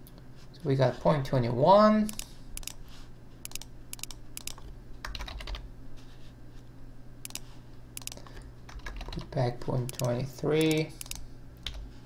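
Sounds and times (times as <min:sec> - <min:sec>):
computer keyboard typing: 0:02.1 - 0:02.8, 0:03.5 - 0:05.6, 0:07.3 - 0:11.8.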